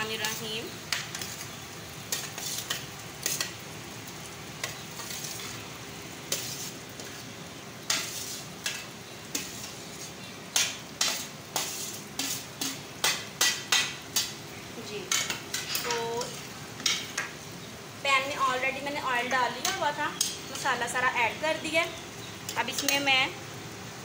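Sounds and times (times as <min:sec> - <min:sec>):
oil sizzling: 0:00.0 - 0:24.0
steel ladle scraping a platter: 0:06.3 - 0:07.2, 0:07.9 - 0:12.8.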